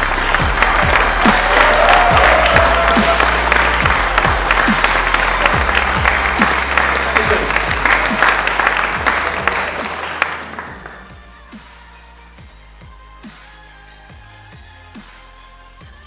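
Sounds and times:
audience applauding: 0.0 - 11.3
music with a steady beat: 0.0 - 16.0.

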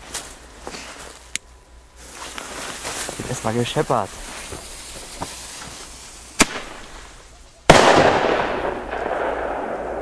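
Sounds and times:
firecracker bang echoing: 6.4 - 10.0.

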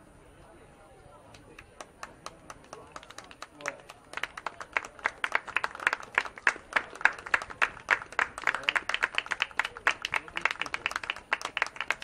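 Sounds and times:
people clapping: 1.3 - 12.0.

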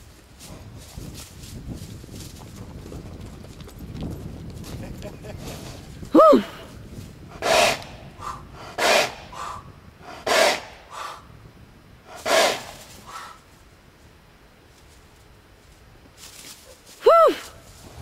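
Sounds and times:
faint puffs: 5.3 - 11.4, 12.0 - 13.6
horse blowing through nostrils: 5.4 - 11.2, 12.1 - 13.4.

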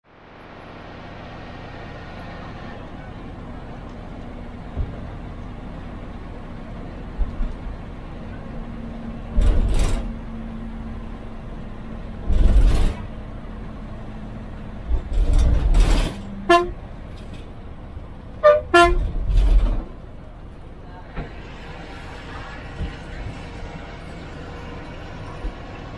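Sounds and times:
bus engine running: 0.0 - 25.9
horn toots: 16.4 - 16.8, 18.4 - 19.2
rushes of noise: 21.1 - 25.9.

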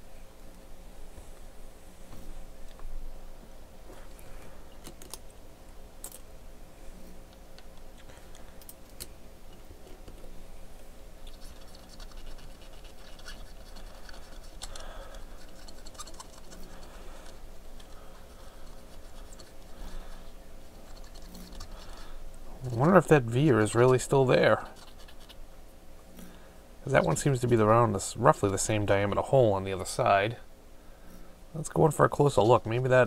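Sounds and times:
brush scrubbing circuit board: 11.3 - 25.4.

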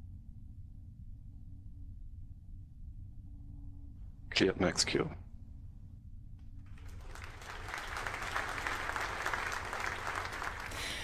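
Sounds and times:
low steady hum: 0.0 - 11.0
applause: 6.7 - 11.0.

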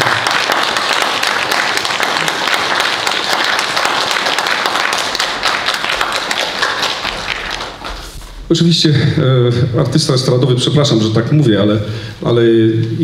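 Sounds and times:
crowd applauding: 0.0 - 8.1.

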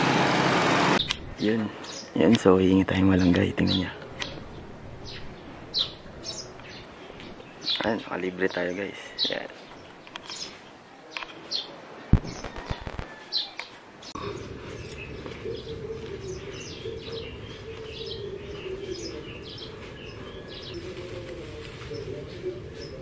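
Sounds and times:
small birds chirping: 1.0 - 23.0
sharp knock: 12.1 - 13.1.

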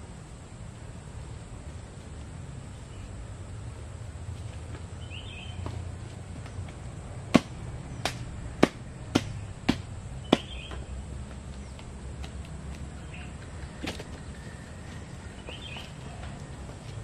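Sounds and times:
bird chirping: 4.9 - 6.7, 9.2 - 11.9, 12.9 - 17.0
wooden knocks of bamboo pole: 6.7 - 10.9.

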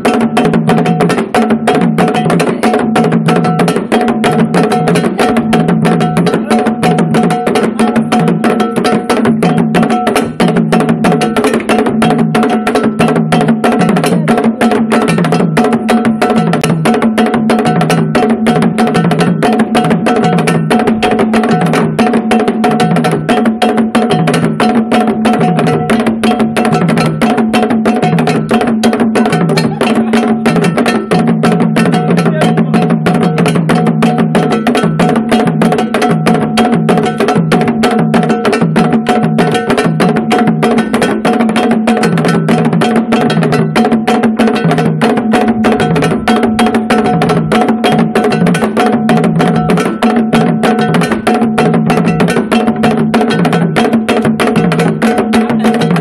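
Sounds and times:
drum ensemble playing fast rhythm: 0.0 - 56.0
high clacking percussion: 0.0 - 56.0.

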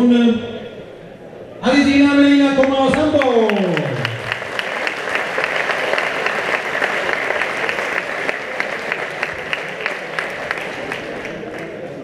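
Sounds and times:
crowd applauding: 2.6 - 12.0.

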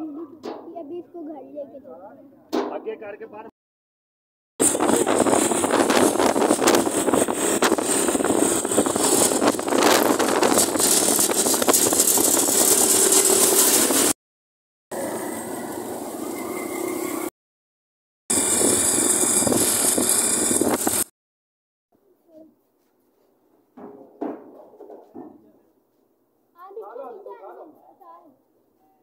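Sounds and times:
engine: 4.6 - 14.2, 14.9 - 17.3, 18.3 - 21.1
road and wind noise: 4.6 - 14.2, 18.3 - 21.1.

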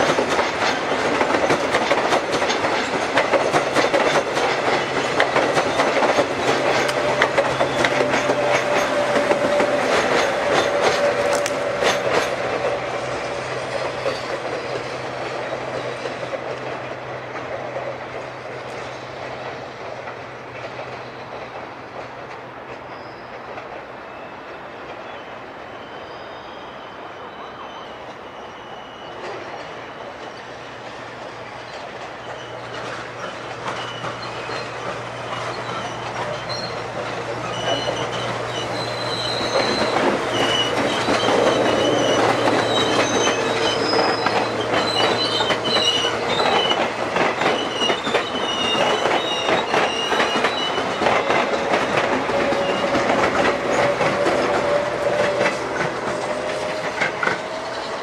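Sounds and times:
wheels squealing: 0.0 - 16.5, 22.8 - 58.0
wheels clicking over rail joints: 0.0 - 23.9, 29.2 - 58.0
electric train passing: 0.0 - 58.0.

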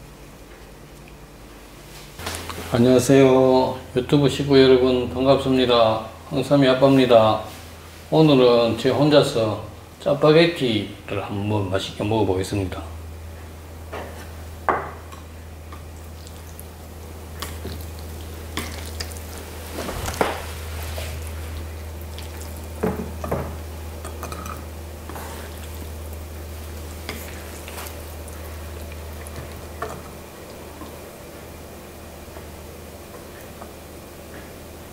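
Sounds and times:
wet rustling of noodles: 15.8 - 23.9, 24.9 - 31.4.

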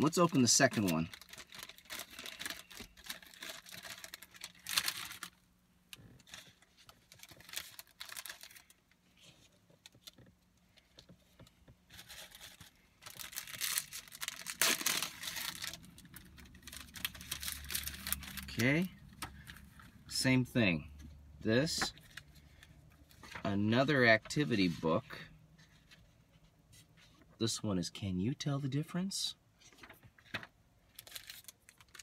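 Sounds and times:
plastic wrapper crinkling and tearing: 0.0 - 9.0, 11.9 - 19.8, 29.7 - 32.0.

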